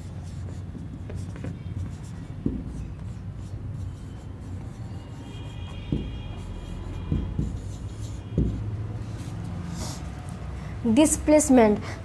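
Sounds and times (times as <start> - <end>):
marker writing on whiteboard: 0.0 - 10.6
marker squeak: 0.2 - 9.3.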